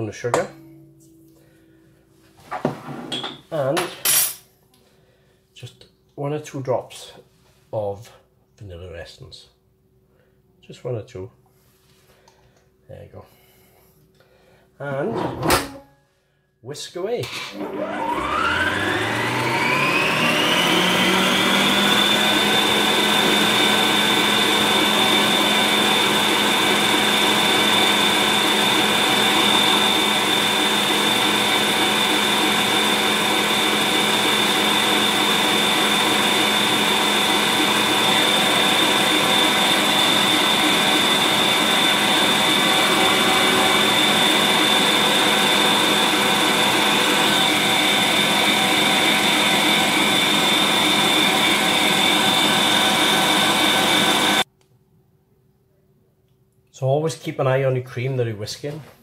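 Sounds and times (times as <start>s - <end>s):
stand mixer motor whining: 17.3s - 54.5s.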